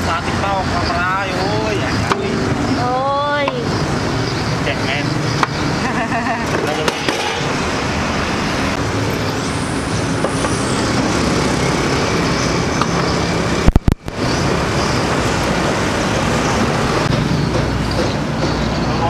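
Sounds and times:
roadside traffic: 0:00.0 - 0:19.0
loud crackle: 0:13.6 - 0:14.2.

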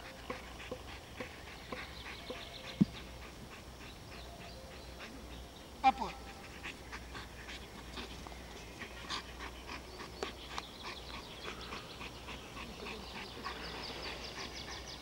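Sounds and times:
dog panting: 0:00.0 - 0:15.0.

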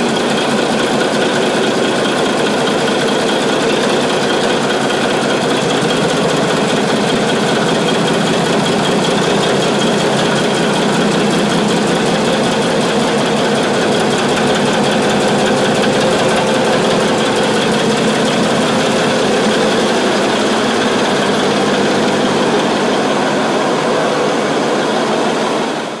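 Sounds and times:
ship engine running: 0:00.0 - 0:26.0.

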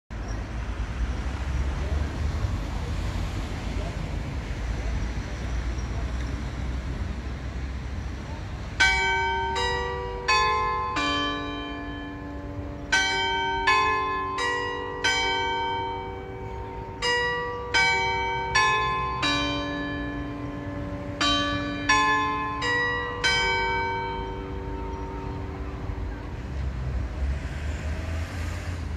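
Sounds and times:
clock tower bells chiming: 0:08.8 - 0:26.7.

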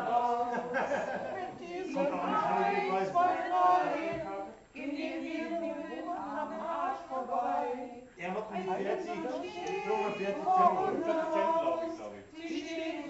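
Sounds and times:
group singing unaccompanied: 0:00.0 - 0:13.0.

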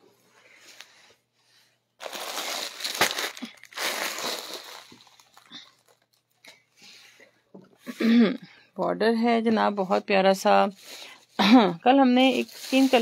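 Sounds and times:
plastic packaging crinkling: 0:02.0 - 0:06.4, 0:12.2 - 0:13.0.

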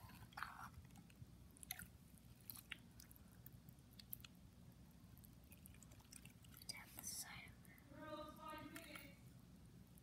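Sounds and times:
wet squelching slime: 0:00.0 - 0:04.4, 0:05.1 - 0:07.0.

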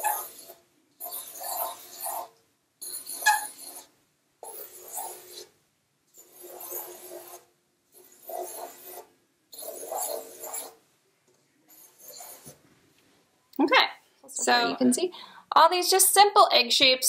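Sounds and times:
marker rubbing across paper: 0:00.0 - 0:10.8, 0:11.6 - 0:12.6.

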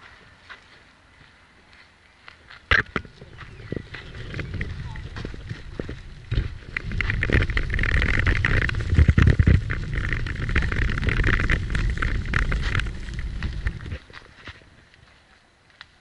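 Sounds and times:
footsteps crunching on gravel: 0:00.0 - 0:16.0
wind on microphone: 0:02.7 - 0:14.9.

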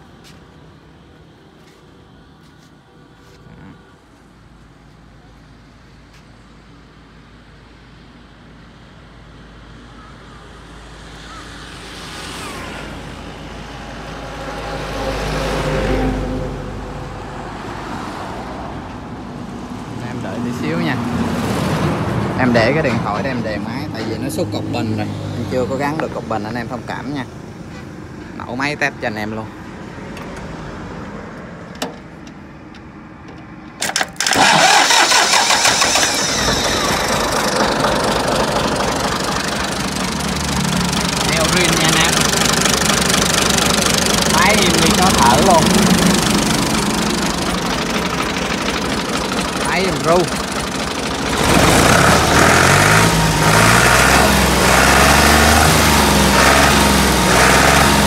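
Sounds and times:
tractor engine starting and running: 0:13.0 - 0:58.0.

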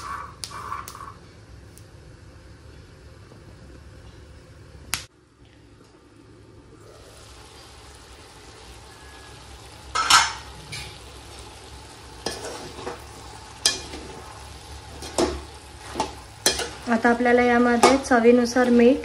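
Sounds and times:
vegetables sizzling in a pan: 0:06.8 - 0:19.0.

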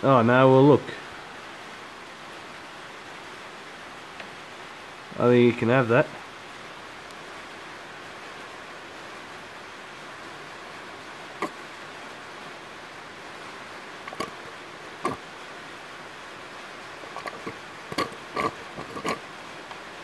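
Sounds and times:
steady hiss: 0:00.0 - 0:20.0
oil gurgling from plastic bottle: 0:14.1 - 0:14.4, 0:15.0 - 0:15.3, 0:17.1 - 0:19.3.

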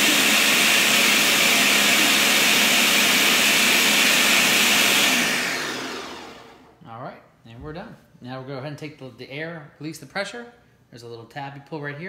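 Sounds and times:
blender motor running: 0:00.0 - 0:06.7.

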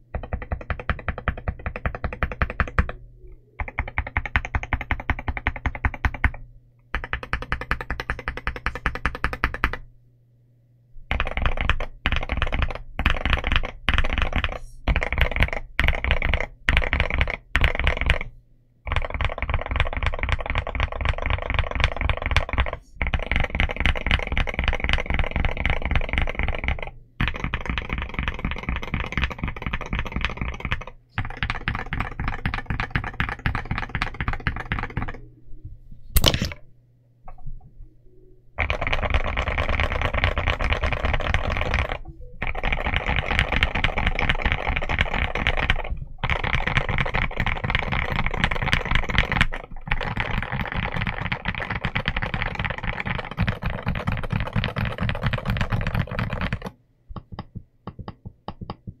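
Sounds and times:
mechanical keyboard typing: 0:00.1 - 0:03.0, 0:03.6 - 0:09.9, 0:11.1 - 0:18.3, 0:18.9 - 0:35.2, 0:38.6 - 0:59.0.

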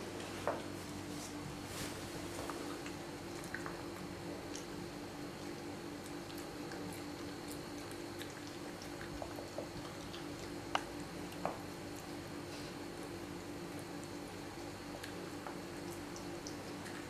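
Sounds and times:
steady low hum: 0:00.0 - 0:17.0
puppy licking with wet mouth clicks: 0:05.4 - 0:12.2, 0:15.0 - 0:17.0.

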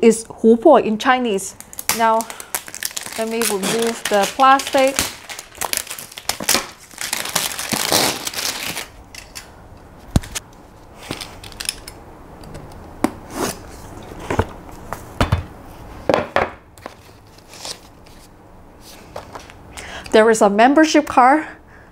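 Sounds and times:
plastic film crinkling: 0:01.6 - 0:09.5.

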